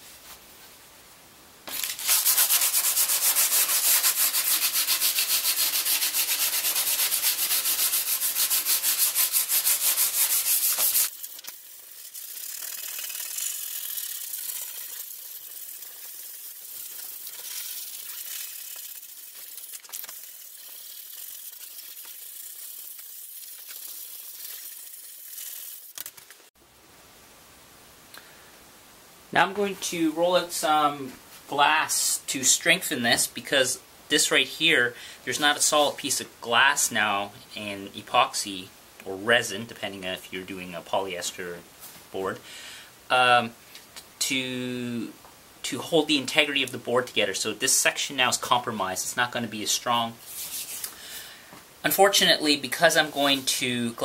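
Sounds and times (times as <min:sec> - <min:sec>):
sandpaper rubbing by hand: 0:01.7 - 0:26.4, 0:49.6 - 0:50.9, 0:52.8 - 0:53.7.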